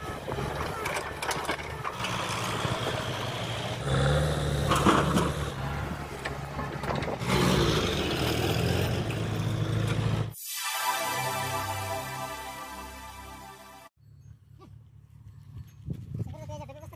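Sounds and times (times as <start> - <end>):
diesel engines running: 0.0 - 10.3.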